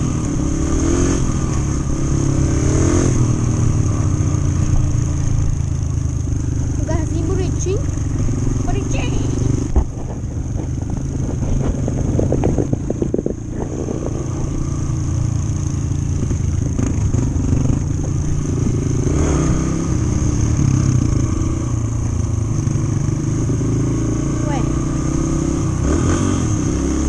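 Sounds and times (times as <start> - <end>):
dirt bike engine running: 0.0 - 27.0
bike clattering over road: 9.5 - 14.1.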